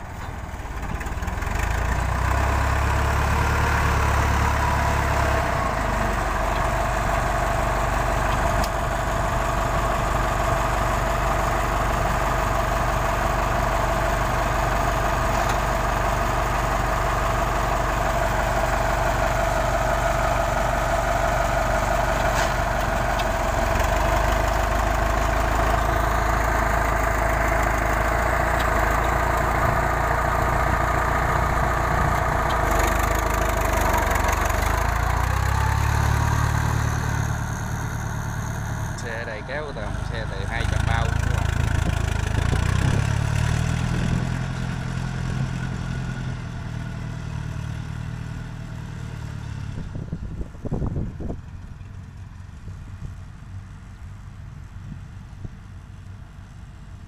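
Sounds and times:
tracked vehicle engine humming: 0.0 - 57.0.

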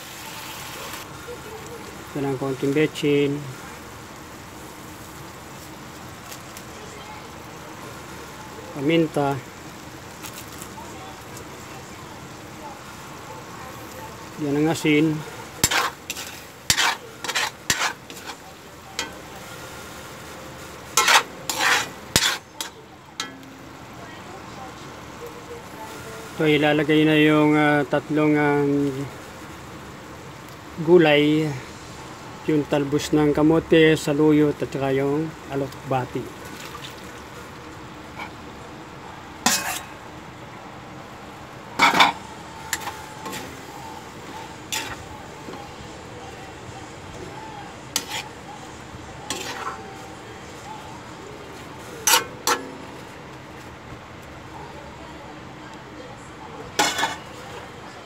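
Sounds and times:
sauce sizzling: 0.0 - 58.0
steady low hiss: 0.0 - 58.0
metal ladle scraping a wok: 14.8 - 19.4, 20.7 - 23.5, 39.4 - 39.9, 41.8 - 45.6, 47.9 - 48.4, 49.2 - 50.2, 51.9 - 53.2, 56.8 - 57.4.

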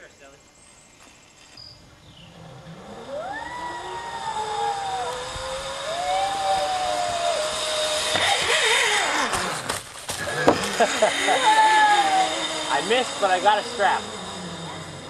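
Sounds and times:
zipline pulley whine on cable: 1.0 - 15.0
long wavering high tones: 2.3 - 8.7, 11.0 - 15.0.

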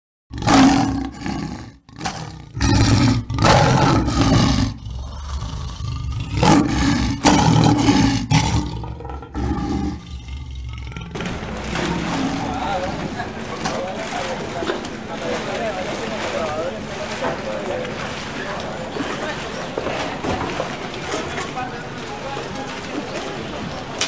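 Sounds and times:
animal roars: 0.3 - 14.0.

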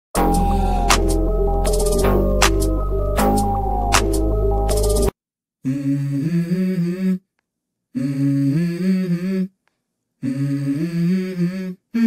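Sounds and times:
hummed vocal melody: 0.2 - 2.5, 5.6 - 7.3, 7.9 - 9.6, 10.2 - 12.0.

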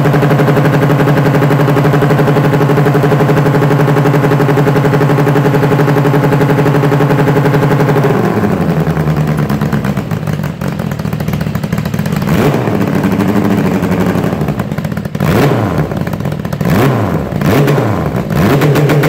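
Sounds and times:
motorcycle engine idling and revving: 0.0 - 19.0.

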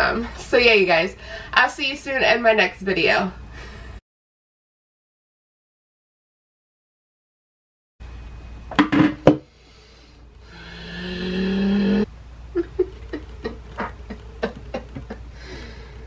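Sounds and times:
woman groaning: 10.6 - 12.1.

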